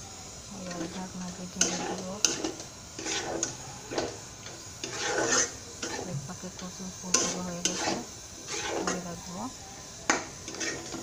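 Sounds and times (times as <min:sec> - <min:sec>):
food sizzling in oil: 0:00.0 - 0:11.0
spatula scraping metal pan: 0:01.6 - 0:04.2, 0:04.8 - 0:06.2, 0:07.1 - 0:09.2, 0:10.1 - 0:11.0.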